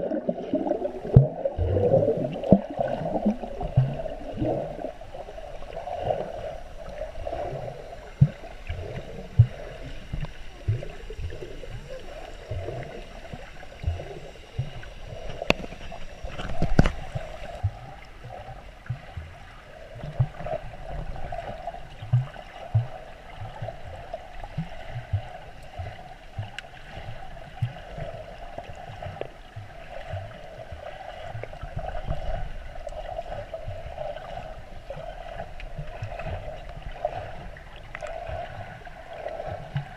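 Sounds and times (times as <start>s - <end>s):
low underwater thumps and knocks: 0.0s - 4.5s
muffled underwater water wash: 0.0s - 39.9s.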